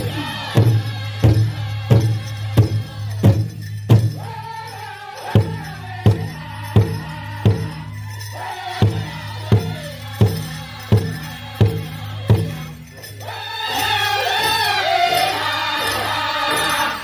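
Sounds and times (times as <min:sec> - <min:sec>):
big drum steady beat: 0:00.0 - 0:04.5, 0:05.3 - 0:08.2, 0:08.8 - 0:12.8.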